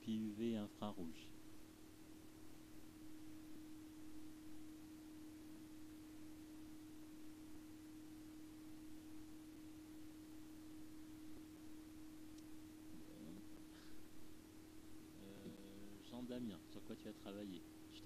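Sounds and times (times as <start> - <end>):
faint hiss: 0.0 - 18.0
steady low hum: 0.0 - 18.0.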